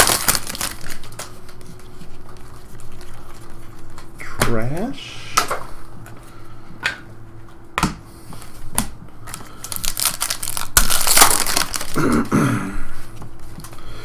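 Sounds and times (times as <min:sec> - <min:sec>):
wrapper crinkling as torn open: 0:00.0 - 0:01.6, 0:09.3 - 0:12.2.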